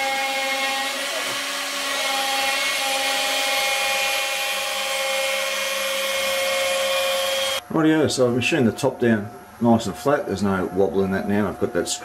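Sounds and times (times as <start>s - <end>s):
router spindle whining: 0.0s - 7.6s.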